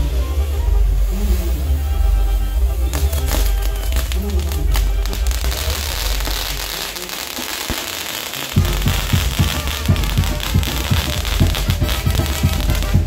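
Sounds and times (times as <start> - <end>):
fireworks hissing and crackling: 0.0 - 13.0
loud music with thumping beat: 8.5 - 13.0.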